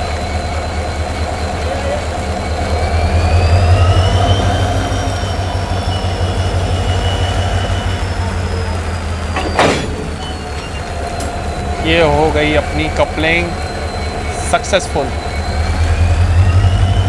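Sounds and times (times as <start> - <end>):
locomotive diesel engine droning: 0.0 - 17.0
coupler clank: 9.3 - 11.4.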